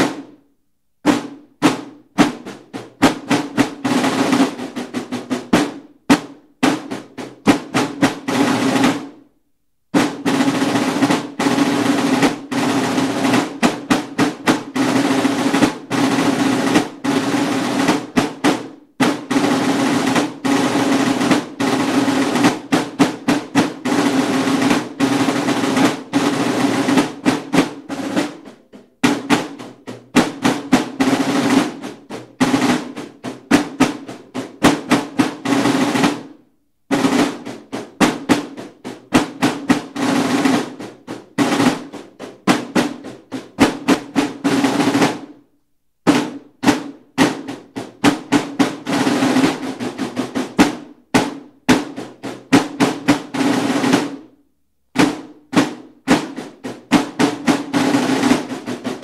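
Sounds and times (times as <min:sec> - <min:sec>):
snare drums marching beat: 0:00.0 - 0:00.4, 0:01.0 - 0:09.2, 0:09.9 - 0:45.4, 0:46.0 - 0:54.3, 0:54.9 - 0:59.0.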